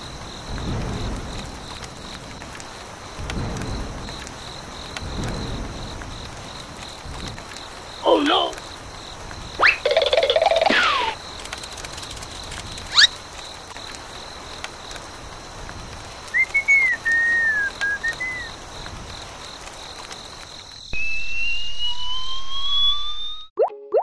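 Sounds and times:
short warbling whistle: 9.6 - 9.9, 16.3 - 18.5, 21.0 - 24.0
slow rising whistle tone: 16.3 - 18.5, 20.9 - 23.6.

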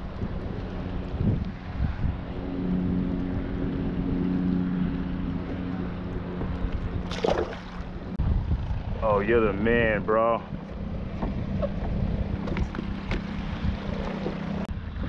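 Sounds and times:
steady low hum: 0.0 - 15.0
wind buffeting microphone: 0.0 - 15.0
fish splashing into water: 7.0 - 7.9.

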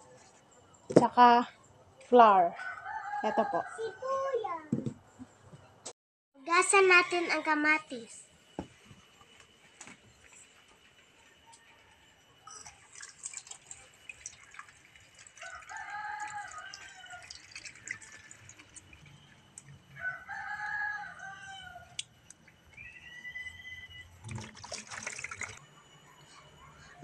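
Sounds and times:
rooster crowing: 2.6 - 4.3, 15.4 - 17.5, 19.9 - 22.0
water splashing and dripping: 12.6 - 19.8, 24.2 - 25.6.

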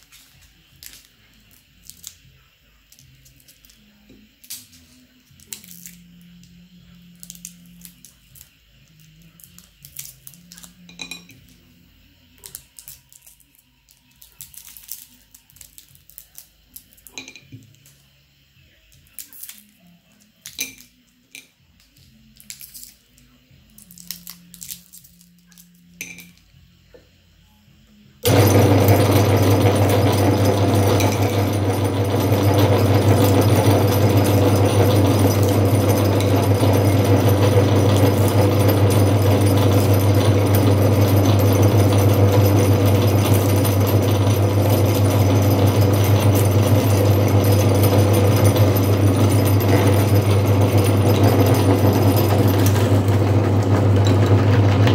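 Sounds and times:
candy wrappers crinkling: 12.4 - 17.2, 19.0 - 19.8, 23.8 - 25.8
electric meat grinder motor humming: 28.2 - 54.9.

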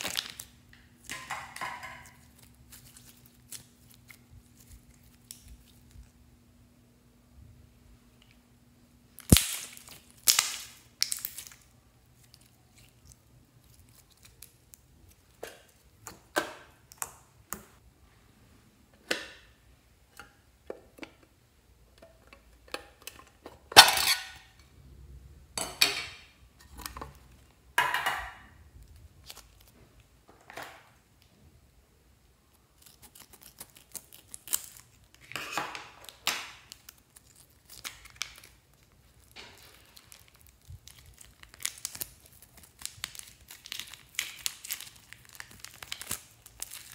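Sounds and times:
slime squelching: 2.0 - 6.2, 9.2 - 17.1.

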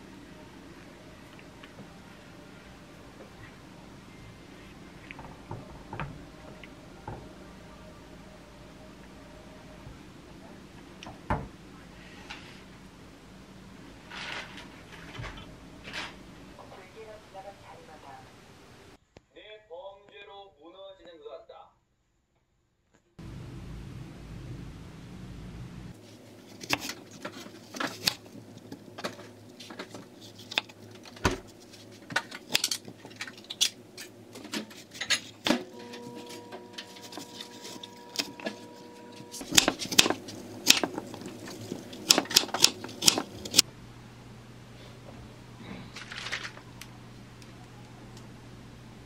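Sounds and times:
knife chopping on wooden board: 39.4 - 43.6.

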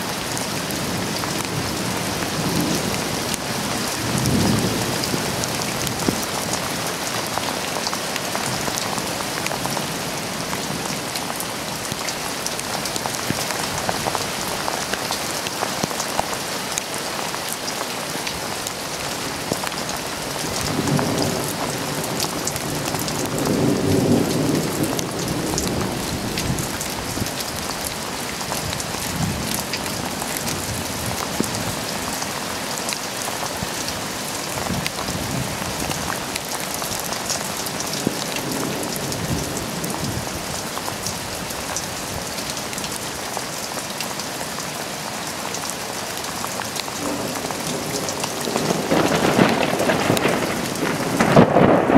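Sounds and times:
steady rain pattering: 0.0 - 51.9
thunder rumbling: 20.4 - 27.9, 47.0 - 51.9.

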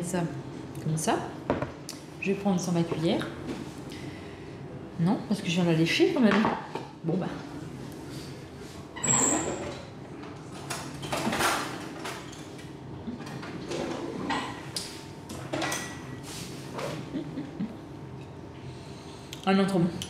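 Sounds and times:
dishwasher humming: 8.8 - 18.5.

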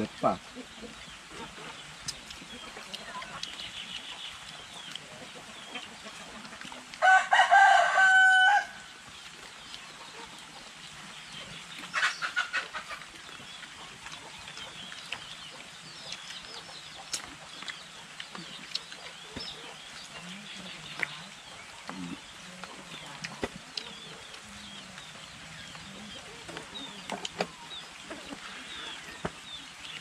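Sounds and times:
chicken clucking: 0.0 - 8.4, 9.3 - 30.0
rooster crowing: 7.0 - 8.9.

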